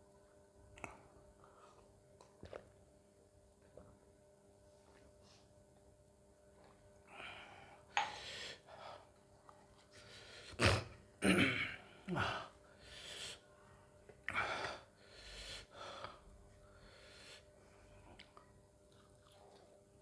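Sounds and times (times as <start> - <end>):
man grunting: 10.6 - 12.5.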